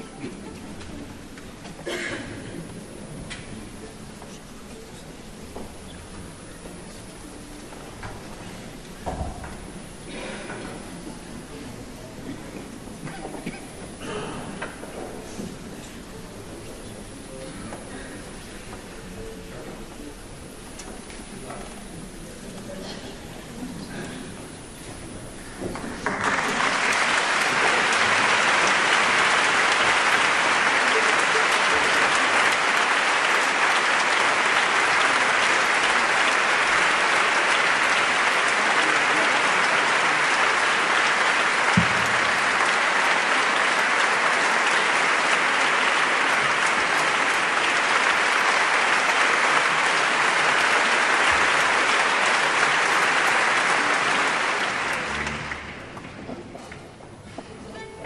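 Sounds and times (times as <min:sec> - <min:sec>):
audience applauding: 0:25.4 - 0:56.2.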